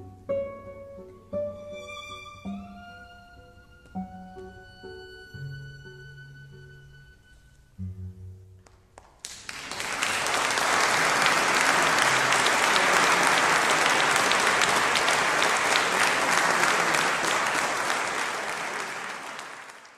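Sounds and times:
audience applause: 9.0s - 19.9s.

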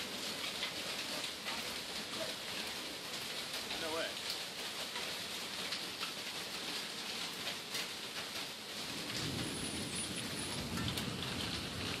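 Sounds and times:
heavy rain pouring: 0.0s - 12.0s
raindrops ticking: 0.0s - 12.0s
low thunder rumble: 8.9s - 12.0s.

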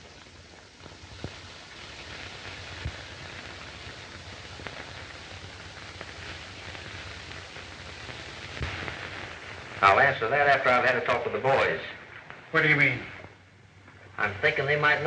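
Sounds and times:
faint clicks and pops: 0.0s - 9.8s, 12.0s - 14.2s
film soundtrack hiss: 0.0s - 15.0s.

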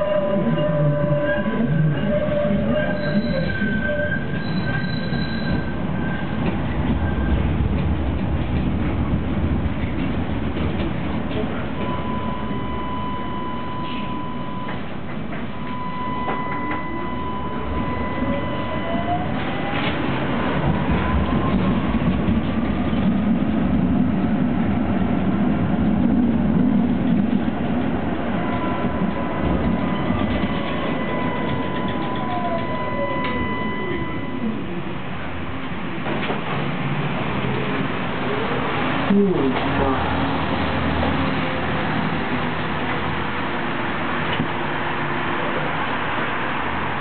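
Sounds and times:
tram wheels rumbling: 0.0s - 47.0s
steady high tone: 15.5s - 19.9s, 28.2s - 35.3s.

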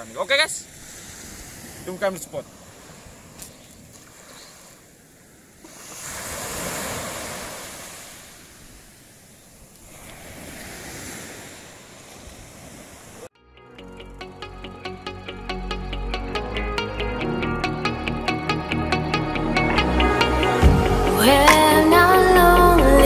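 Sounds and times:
sea surf: 0.0s - 13.3s.

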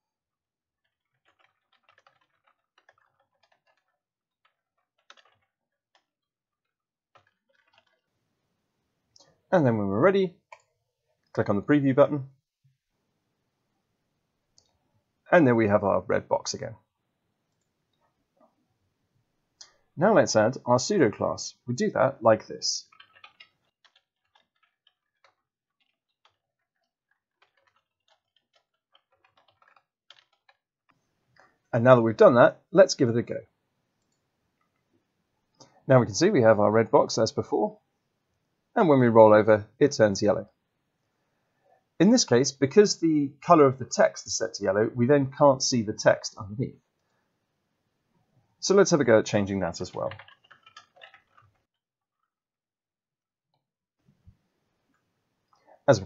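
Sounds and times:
faint keyboard typing: 0.8s - 8.2s, 19.6s - 37.5s, 48.6s - 51.7s.

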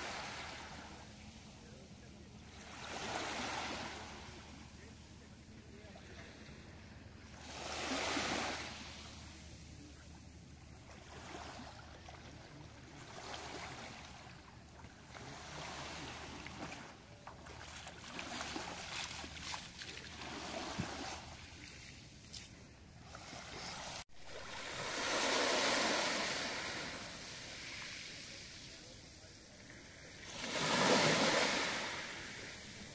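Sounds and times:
waves washing onto pebbly beach: 23.2s - 29.2s, 30.1s - 32.9s.

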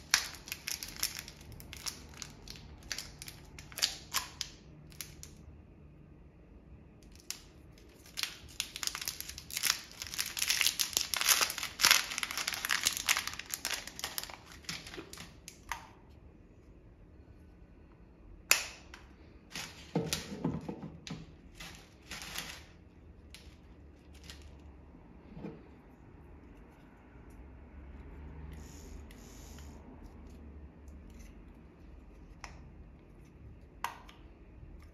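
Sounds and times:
plastic bag crinkling: 0.0s - 5.3s, 7.1s - 15.7s, 19.5s - 20.7s, 21.3s - 24.7s.

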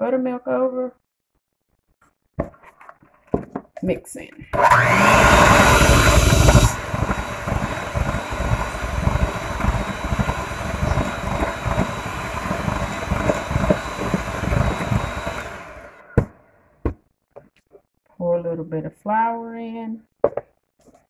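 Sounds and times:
electric hand mixer whining: 4.5s - 16.3s.

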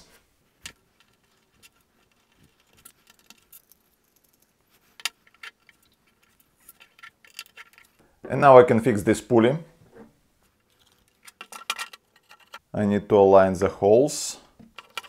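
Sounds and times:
small metal nuts clicking into plastic: 14.7s - 15.0s.

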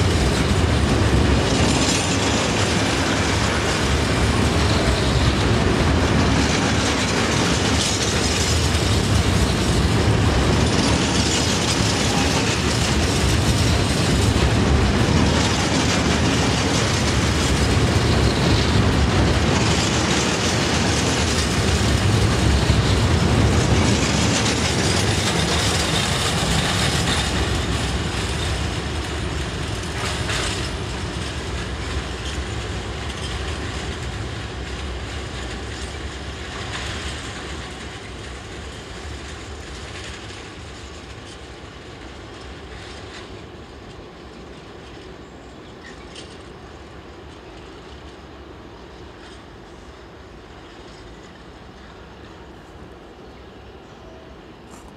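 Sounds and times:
train wheels clattering over rails: 0.0s - 52.6s.

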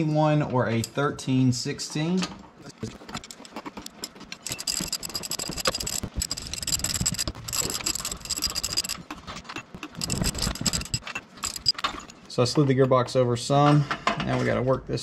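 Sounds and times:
socket ratchet clicking: 3.1s - 12.2s.

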